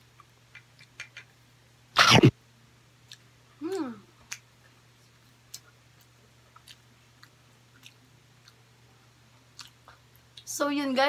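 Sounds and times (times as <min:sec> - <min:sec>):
steady low hum: 0:00.0 - 0:11.0
person humming: 0:03.6 - 0:04.1
chewing mouth clicks: 0:05.5 - 0:08.6, 0:09.6 - 0:10.5.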